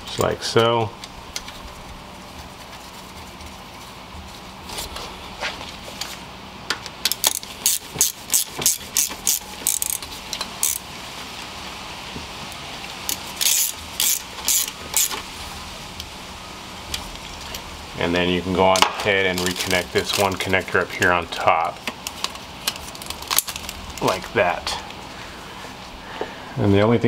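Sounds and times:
socket ratchet clicking: 7.0s - 10.8s, 13.1s - 15.2s.

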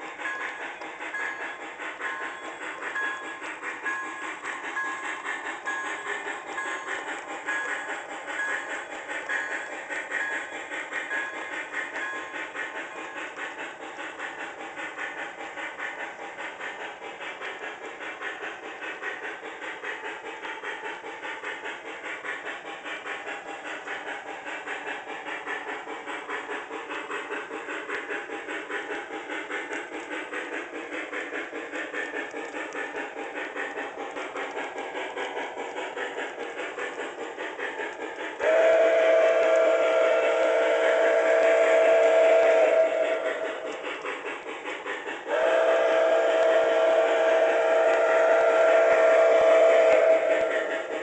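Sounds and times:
model locomotive steam chuffing: 0.0s - 51.0s.

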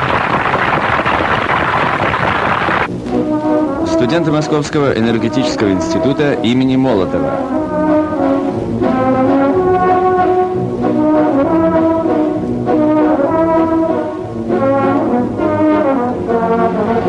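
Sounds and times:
brass band music: 0.0s - 17.0s.

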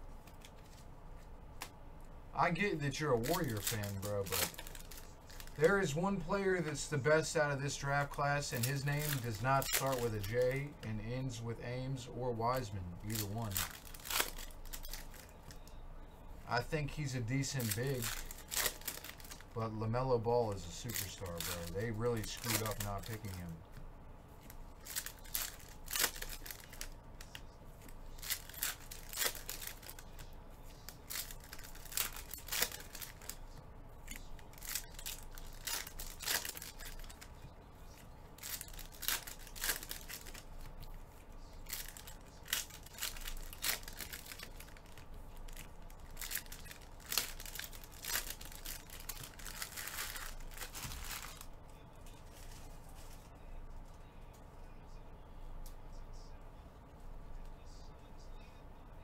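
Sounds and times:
foil wrapper tearing and crinkling: 2.9s - 6.8s, 7.8s - 10.7s, 13.0s - 15.4s, 17.0s - 19.6s, 20.5s - 23.5s, 24.8s - 27.4s, 28.1s - 37.4s, 38.4s - 40.6s, 41.4s - 51.5s.

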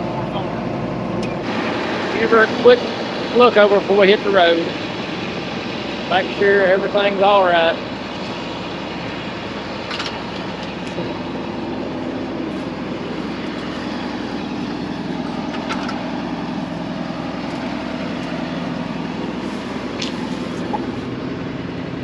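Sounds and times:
tractor diesel engine idling: 0.0s - 22.0s.

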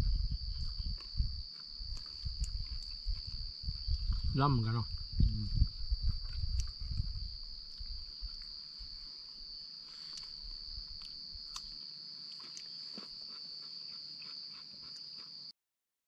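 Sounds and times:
low rumble: 0.0s - 8.1s
insects droning: 0.0s - 15.5s.

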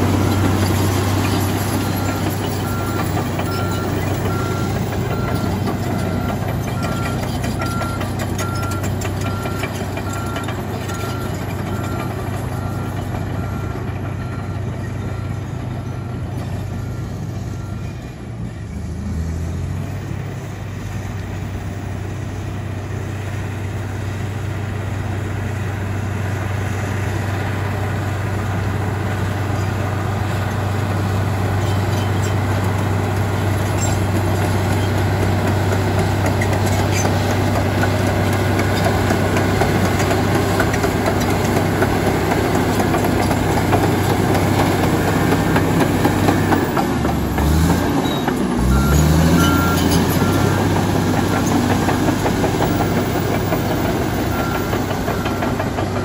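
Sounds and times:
steel tracks and stones clattering: 0.0s - 14.2s, 31.5s - 56.0s
bulldozer diesel engine: 0.0s - 56.0s.

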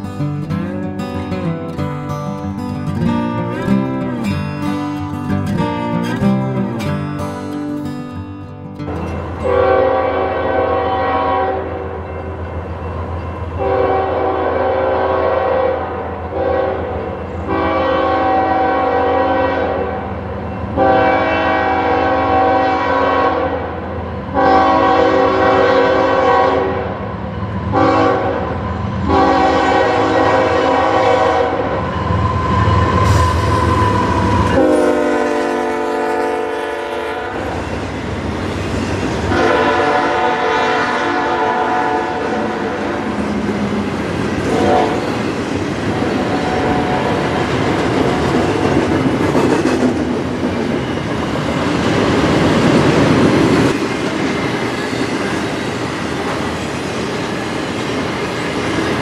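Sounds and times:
low rumble of train: 0.0s - 59.0s
locomotive air horn blasts: 9.4s - 11.9s, 13.6s - 16.9s, 17.5s - 20.0s, 20.8s - 23.7s, 24.4s - 26.9s, 27.7s - 28.5s, 29.1s - 31.7s, 33.1s - 37.6s, 39.3s - 43.0s, 44.5s - 45.1s, 46.3s - 47.2s.

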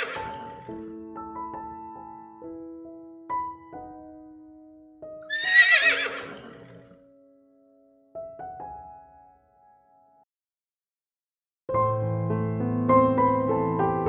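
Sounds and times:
horse whinnying: 0.0s - 0.8s, 5.3s - 6.9s
soft piano music: 0.0s - 5.3s, 6.8s - 10.3s, 11.7s - 14.0s.

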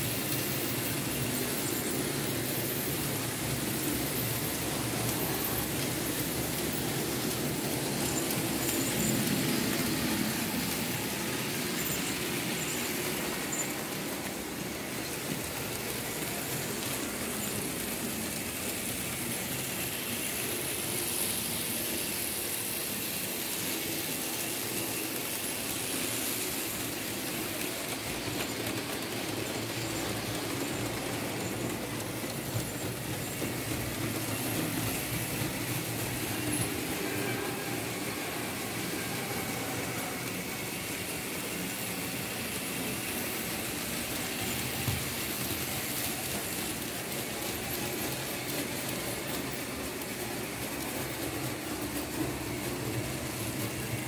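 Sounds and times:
wheels rolling on metal rails: 0.0s - 21.9s, 24.1s - 54.0s
model train electric motor: 0.0s - 54.0s.

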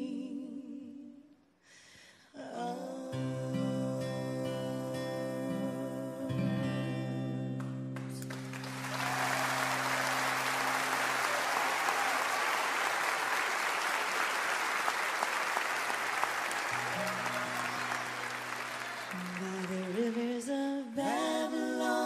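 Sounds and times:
audience applause: 8.0s - 20.3s.

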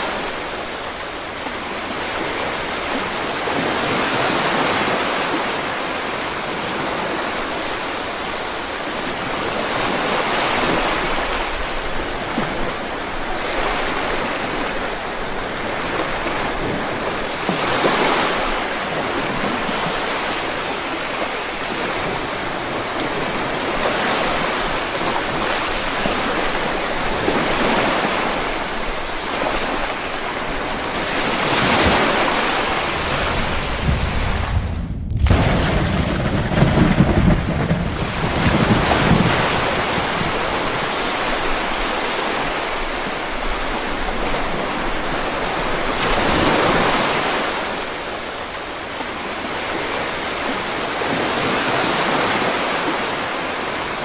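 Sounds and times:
heavy rainfall: 0.0s - 54.0s.

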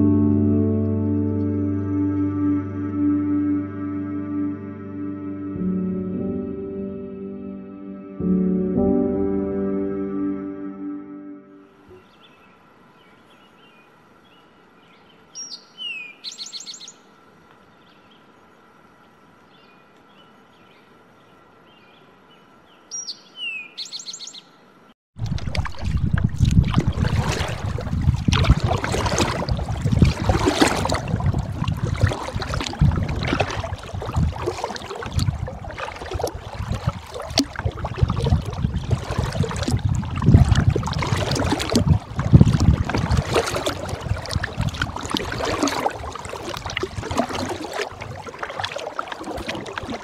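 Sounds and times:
wind buffeting microphone: 25.2s - 48.6s
paddle splashing in water: 25.2s - 50.0s
water dripping off paddle: 25.2s - 50.0s.

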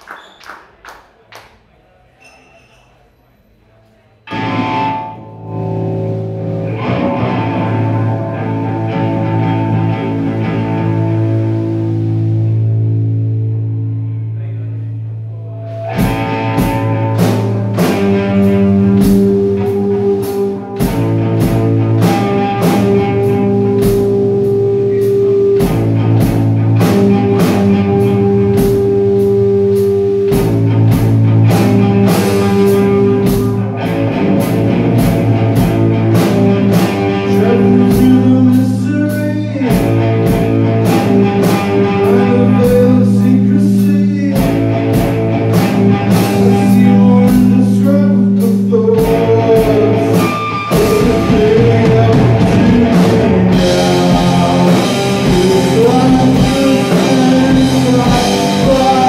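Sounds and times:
electric guitar low chords: 4.3s - 59.0s
drum kit with cymbal hits: 15.7s - 59.0s.

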